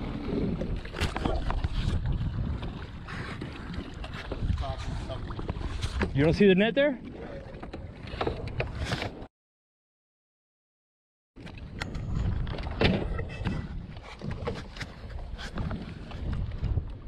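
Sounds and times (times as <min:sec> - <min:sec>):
water splashing against jet ski: 0:00.0 - 0:09.3
wind rumbling on microphone: 0:00.0 - 0:09.3, 0:11.4 - 0:17.0.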